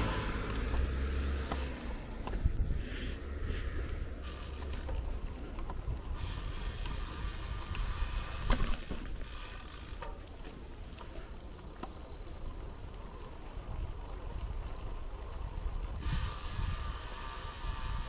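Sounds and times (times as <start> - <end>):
wind and road rumble: 0.0 - 18.0
bicycle freewheel ticking: 0.3 - 11.0, 11.6 - 18.0.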